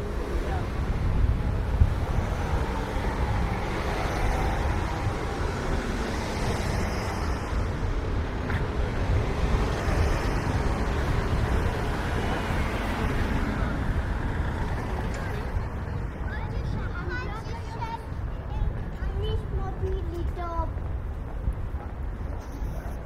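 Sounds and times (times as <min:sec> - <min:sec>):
road traffic passing: 0:00.0 - 0:23.0.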